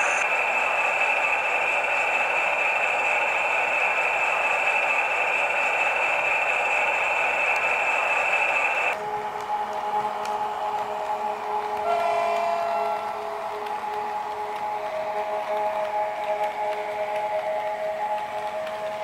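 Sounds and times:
model diesel engine sound with whine: 0:00.0 - 0:09.0.

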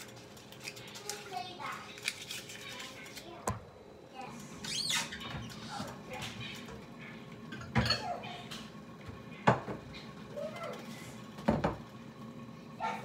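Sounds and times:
kitchenware clanking: 0:04.6 - 0:11.8.

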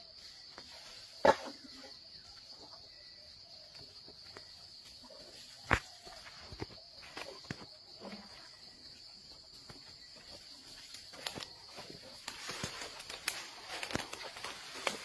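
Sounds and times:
high-pitched insect chorus: 0:00.0 - 0:15.0
twigs and leaves crackling underfoot: 0:04.2 - 0:08.3, 0:09.4 - 0:15.0.

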